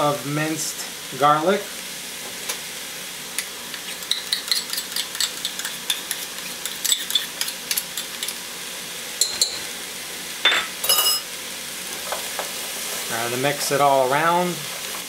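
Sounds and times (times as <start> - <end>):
vegetables sizzling in oil: 0.0 - 15.0
spoon scraping and tapping cup: 4.1 - 8.4, 9.2 - 9.6
dish clinking: 10.5 - 11.3.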